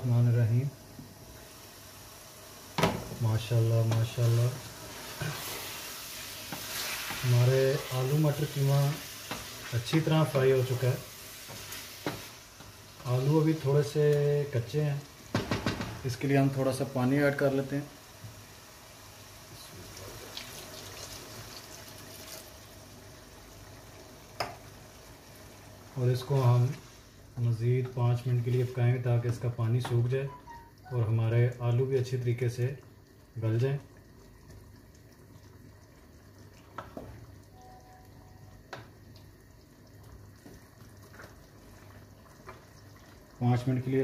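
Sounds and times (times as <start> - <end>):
faint steady hum: 0.0 - 44.0
food simmering: 0.5 - 44.0
water pouring into hot pot: 1.3 - 27.2
spatula stirring curry in pot: 4.9 - 7.3.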